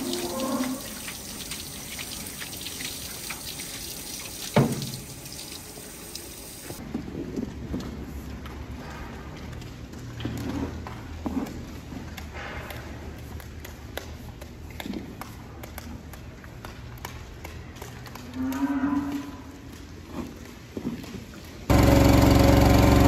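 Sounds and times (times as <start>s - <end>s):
cow mooing: 0.0s - 1.0s.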